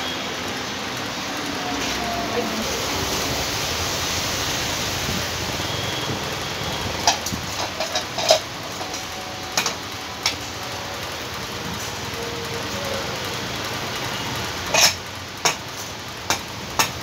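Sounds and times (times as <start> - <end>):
metal parts clicking on concrete: 6.9 - 11.0, 14.3 - 17.0.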